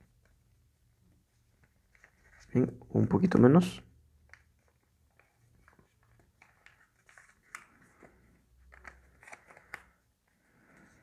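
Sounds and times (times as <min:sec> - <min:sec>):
paper rustling and crinkling: 0:04.3 - 0:10.0.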